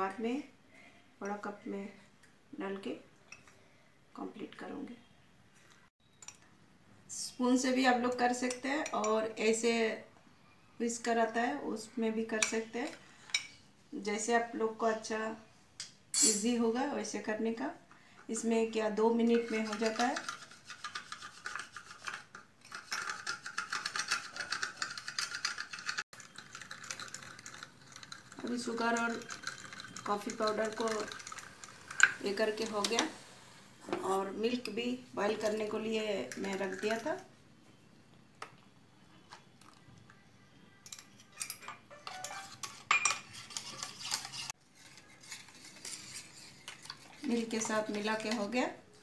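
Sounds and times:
wire whisk clinking in metal pan: 16.2s - 16.5s
whisk clicking against cup: 19.3s - 32.2s.

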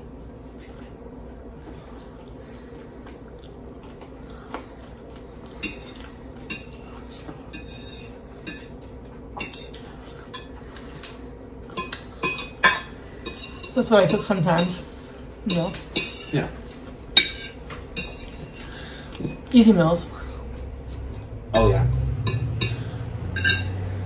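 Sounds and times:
metal fork clinking on plate: 22.2s - 23.8s.

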